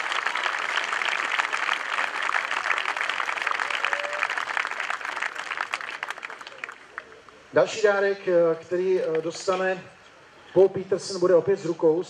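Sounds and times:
crowd applauding: 0.0 - 7.4.

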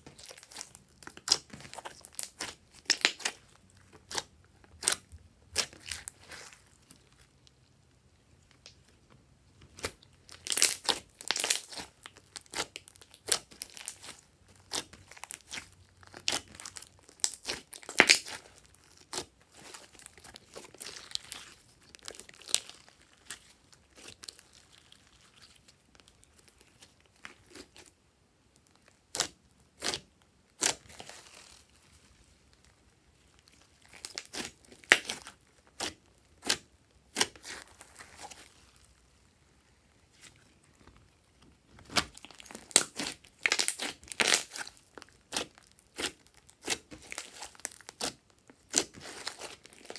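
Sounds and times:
slime squishing with sticky pops: 0.0 - 7.6, 8.5 - 27.9, 28.5 - 31.7, 32.6 - 49.9.

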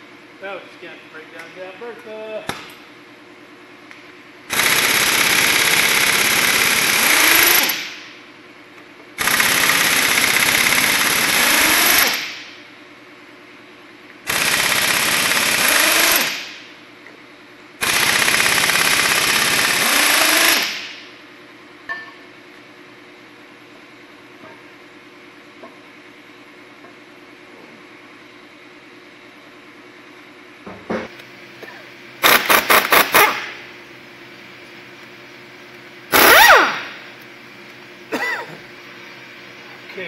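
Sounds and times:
pneumatic impact wrench hammering: 4.5 - 8.2, 9.2 - 12.6, 14.3 - 16.7, 17.8 - 21.1, 32.2 - 33.6, 36.1 - 37.1.

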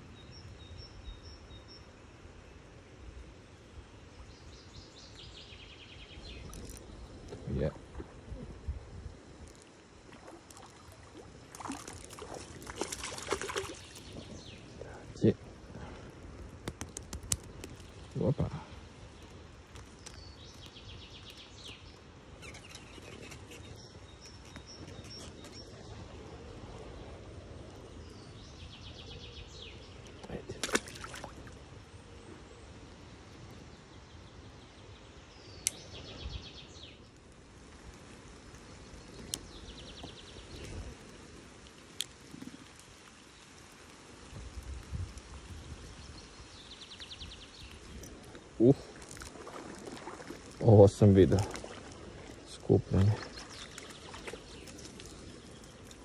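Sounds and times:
light rain hiss: 0.0 - 56.0
sharp clicks: 16.6 - 17.9
songbird trilling: 22.4 - 25.7.

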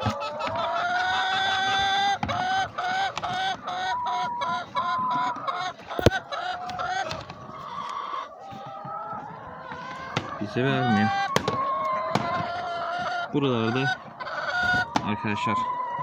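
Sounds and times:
hen clucking: 0.0 - 16.0.

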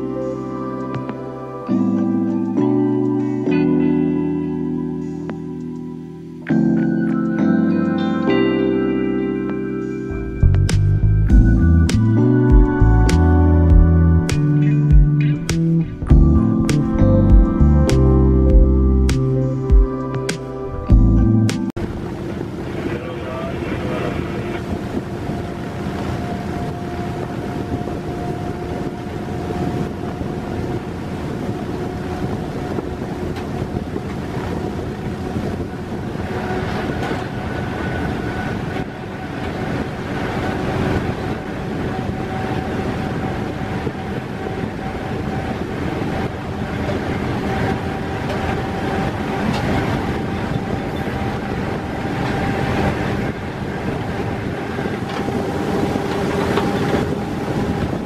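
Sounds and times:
rising whine: 0.0 - 58.0
wind: 0.0 - 58.0
locomotive engine: 9.8 - 58.0
wheels on rail noise: 21.8 - 58.0.

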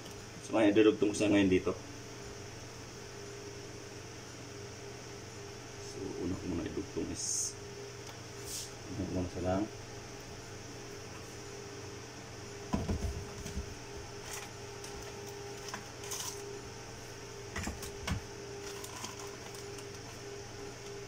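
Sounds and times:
steady background hum: 0.0 - 21.0.

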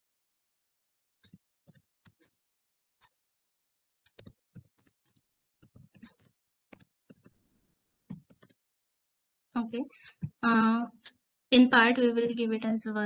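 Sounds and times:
computer keyboard typing: 4.1 - 7.4, 8.1 - 8.6.

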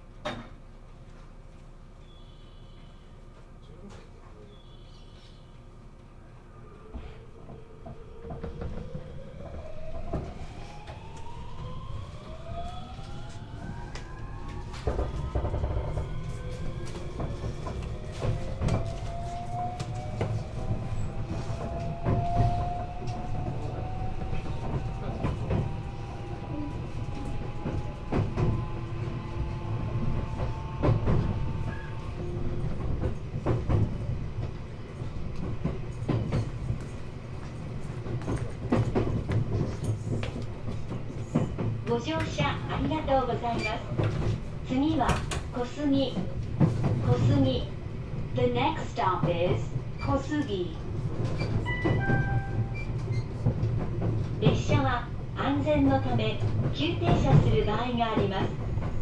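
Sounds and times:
low train running rumble: 0.0 - 59.0.

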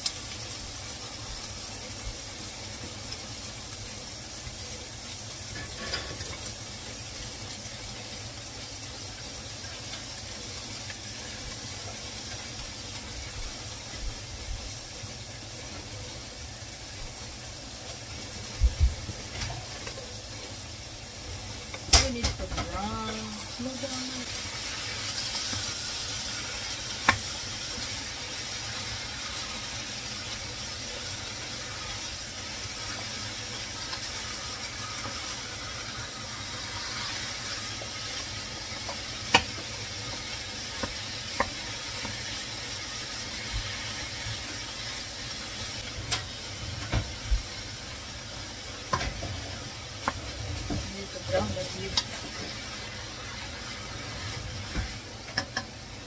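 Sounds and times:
meat sizzling in a pan: 0.0 - 56.0.

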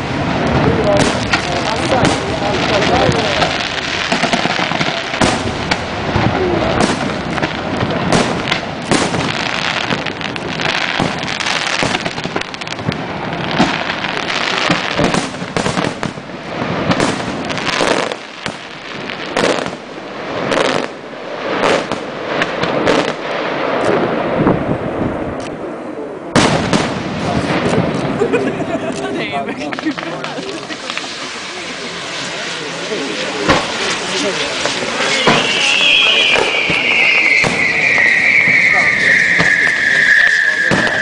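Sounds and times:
firework crackle: 0.0 - 41.0
firework shell bangs: 33.3 - 41.0.

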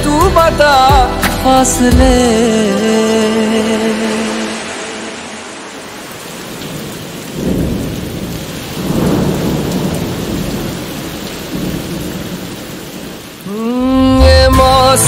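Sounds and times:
steady rain hiss: 2.3 - 13.9
rolling thunder: 5.7 - 13.3.

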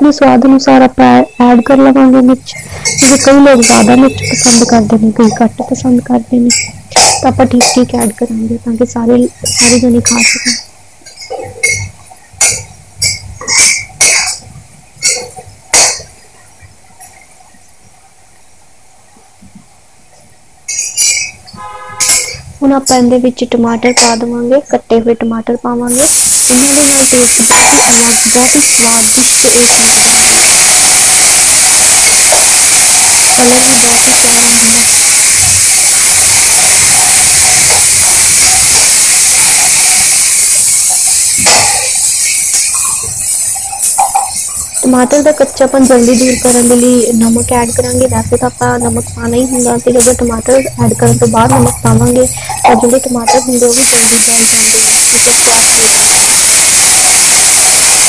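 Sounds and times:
vegetables sizzling in hot fat: 1.8 - 16.2, 25.9 - 58.0
metal spatula scraping a pan: 2.6 - 4.9, 20.7 - 22.5
metal spatula stirring: 2.6 - 5.4, 9.4 - 16.1, 20.7 - 22.5, 39.6 - 54.3.

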